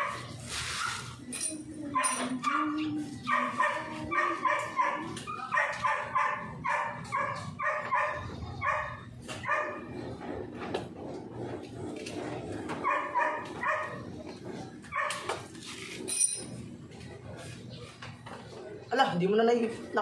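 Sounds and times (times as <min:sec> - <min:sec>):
dog yapping: 0:02.0 - 0:10.0, 0:12.8 - 0:14.1, 0:14.9 - 0:15.3.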